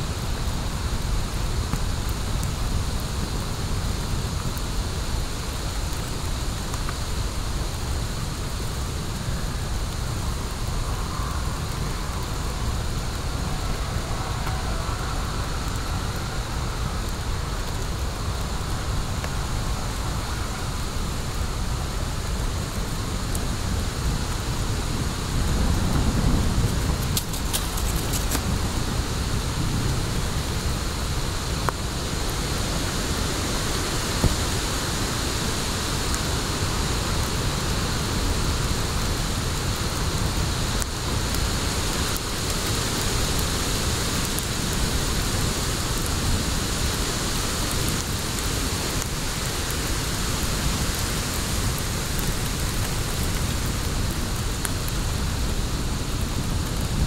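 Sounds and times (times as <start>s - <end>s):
wood fire hissing: 0.0s - 57.0s
fire pops: 25.6s - 28.9s, 47.6s - 55.0s.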